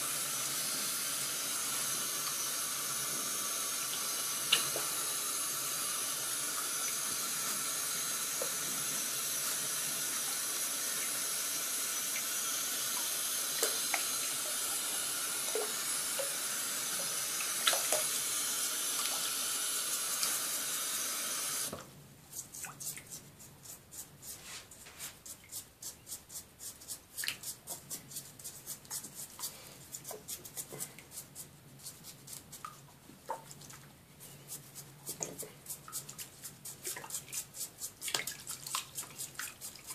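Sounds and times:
water running into a basin: 0.0s - 21.9s, 35.1s - 39.9s
water splashes and drips: 3.9s - 5.0s, 12.9s - 16.4s, 17.0s - 18.1s, 19.0s - 19.4s, 35.1s - 39.9s.

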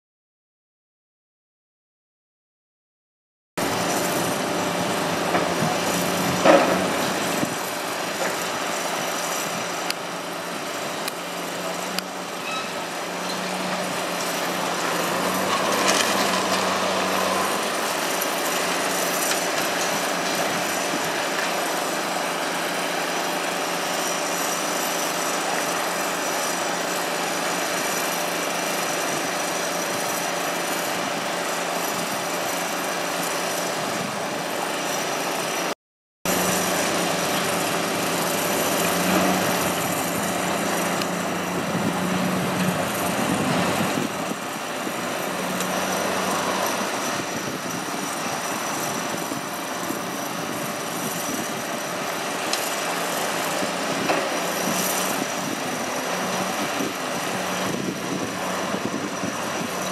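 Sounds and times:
diesel engine hum: 3.6s - 35.7s, 36.3s - 59.9s
concrete crunching and clattering: 5.2s - 8.8s, 11.1s - 21.7s.

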